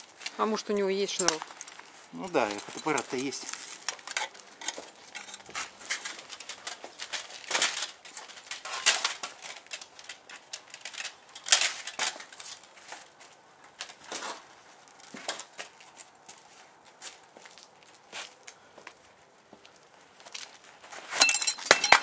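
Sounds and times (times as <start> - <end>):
metal armour clinking and rattling: 1.0 - 16.2, 20.3 - 22.0.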